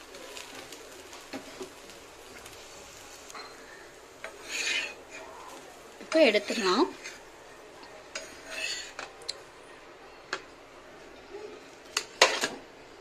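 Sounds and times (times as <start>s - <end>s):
spatula scraping pan: 3.4s - 7.3s, 8.1s - 9.1s.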